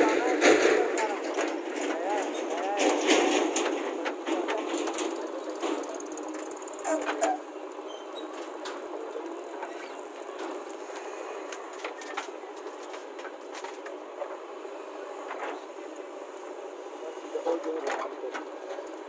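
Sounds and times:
bucket and earth clatter: 0.0 - 14.4
diesel engine under load: 0.0 - 19.0.

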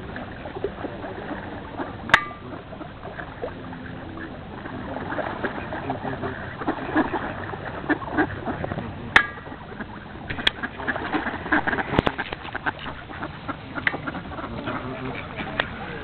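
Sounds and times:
ducks quacking: 0.0 - 16.0.

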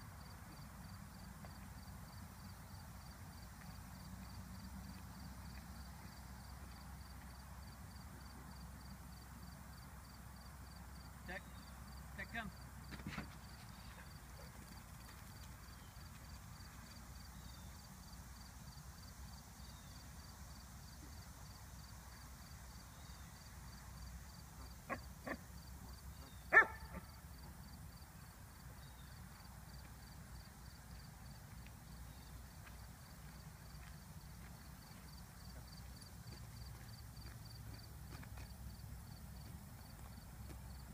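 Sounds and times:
open-air background: 0.0 - 40.9
dog bark: 26.5 - 27.0.

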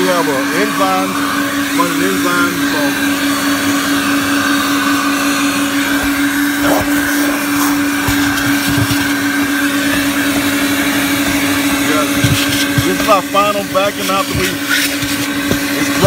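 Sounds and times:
carpet extractor vacuum motor: 0.0 - 16.0
spray hissing: 1.8 - 10.1.

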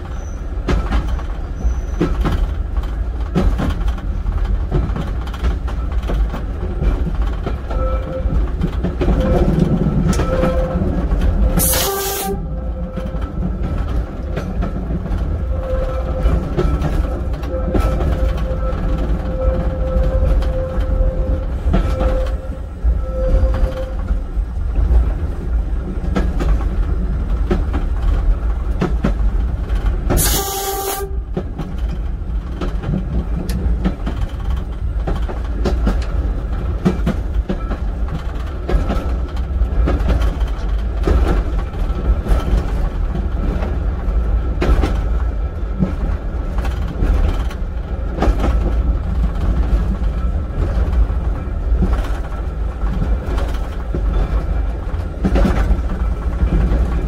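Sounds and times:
train rumbling: 0.0 - 57.0
wheels clicking over rail joints: 0.0 - 57.0
train horn blast: 7.7 - 8.4, 9.2 - 13.1, 17.4 - 24.2, 30.2 - 31.4.

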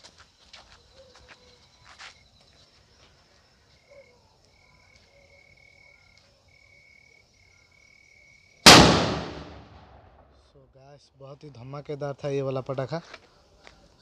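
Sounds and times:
firecracker bang: 8.7 - 10.1.

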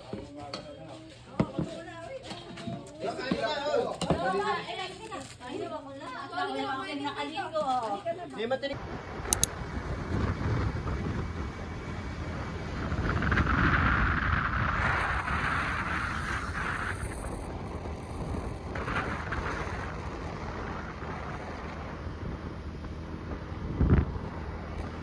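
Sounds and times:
scooter low rumble: 8.8 - 25.0
wind rushing over microphone: 8.8 - 25.0.

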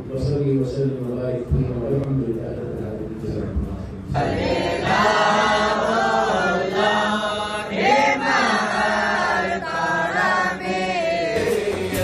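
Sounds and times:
male voices chanting in unison: 4.1 - 12.0.

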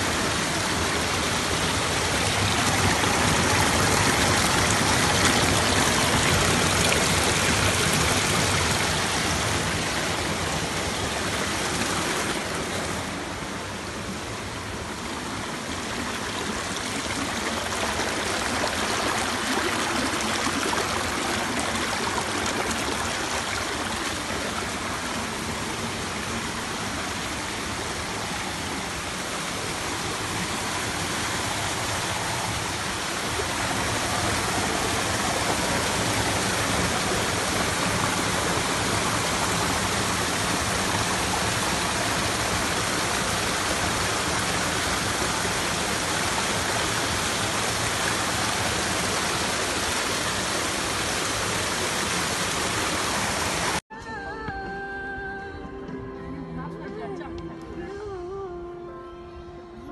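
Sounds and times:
stream rushing over boulders: 0.0 - 53.8.

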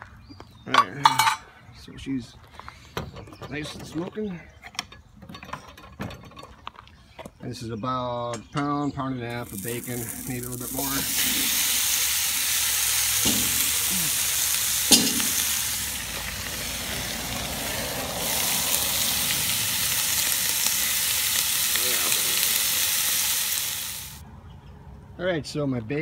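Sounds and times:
bacon sizzling in a pot: 9.3 - 24.2.

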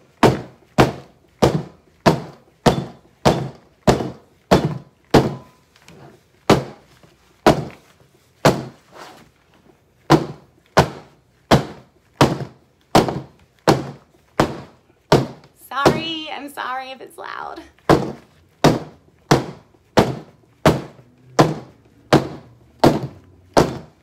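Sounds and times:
soap mold banging on table: 0.2 - 5.5.

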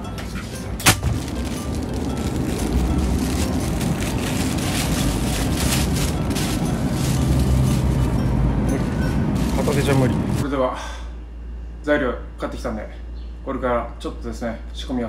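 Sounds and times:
supermarket background rumble: 0.0 - 10.6
plastic bag rustling: 0.8 - 10.4.

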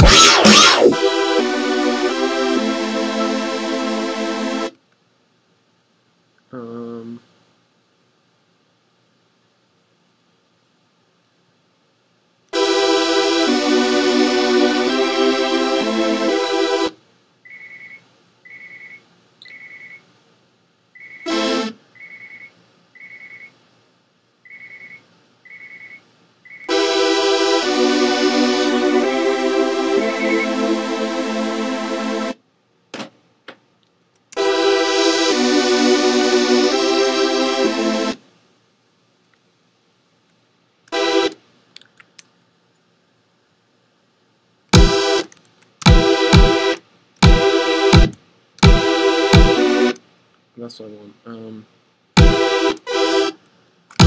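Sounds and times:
buzzy synthesizer hits: 0.0 - 2.7, 44.8 - 45.2, 45.9 - 46.6, 47.2 - 49.7, 52.2 - 52.7
synth pad chord: 0.0 - 4.7, 12.6 - 17.0, 21.3 - 21.8, 26.7 - 32.4, 34.4 - 38.2, 40.9 - 41.4.

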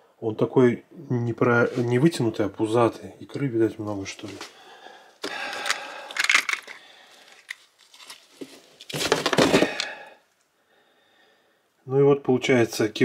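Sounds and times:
handling frozen fish: 5.2 - 10.1.

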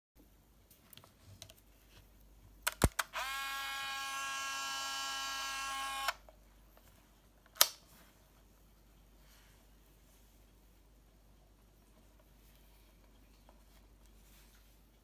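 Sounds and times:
camera motor whirring: 3.1 - 6.2.

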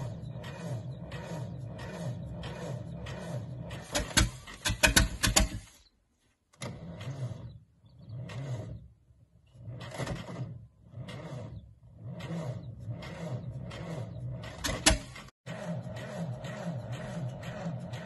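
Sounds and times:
engine cranking over: 0.0 - 5.9, 6.6 - 18.0.

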